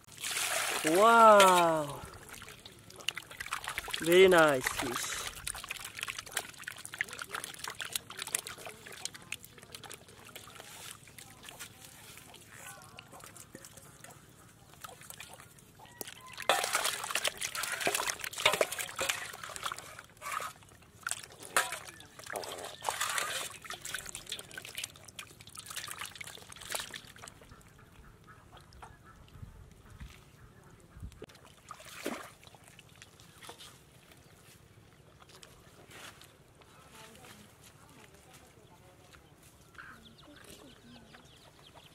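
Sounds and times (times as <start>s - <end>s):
water poured from steel bowl: 0.0s - 12.5s, 14.8s - 27.3s
water sloshing in steel basin: 0.0s - 29.0s, 31.2s - 34.4s.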